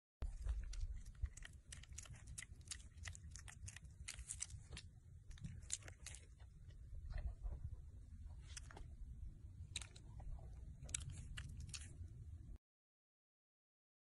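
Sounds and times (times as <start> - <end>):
piglet crunching through grass: 0.2 - 7.6, 9.7 - 12.0
low rumble: 0.2 - 12.6.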